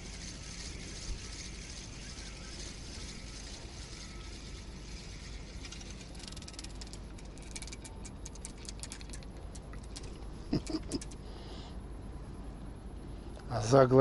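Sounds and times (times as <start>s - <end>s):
spinning reel cranking: 0.0s - 10.1s
fast dense clicks: 0.0s - 11.2s.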